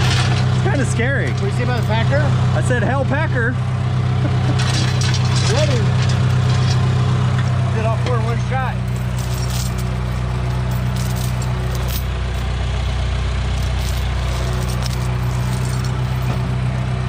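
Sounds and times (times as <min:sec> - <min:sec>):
diesel engine running: 0:00.0 - 0:17.0
chain clinking and rattling: 0:01.4 - 0:02.1, 0:04.6 - 0:06.8, 0:08.8 - 0:12.5, 0:13.5 - 0:16.6.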